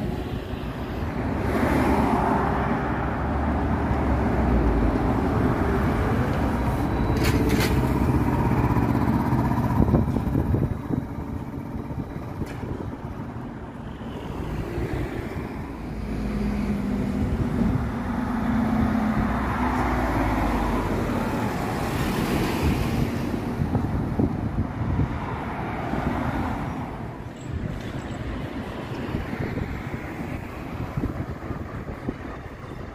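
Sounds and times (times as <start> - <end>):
traffic passing close by: 0.0 - 32.9
steady engine hum: 4.5 - 19.4.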